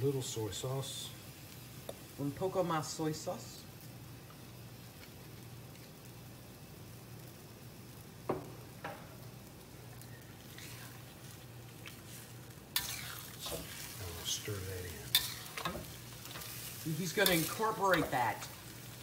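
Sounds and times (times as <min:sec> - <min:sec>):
food sizzling in water: 0:00.0 - 0:19.0
metal spatula scraping wok: 0:10.5 - 0:11.0, 0:12.0 - 0:18.7.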